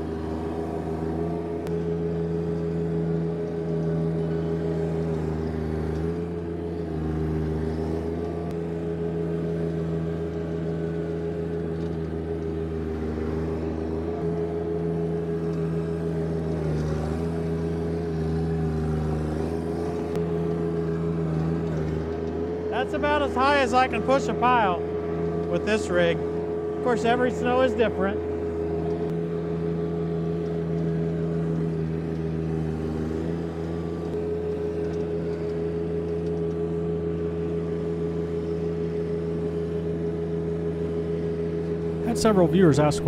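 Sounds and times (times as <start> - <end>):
tractor diesel engine running: 0.0 - 43.0.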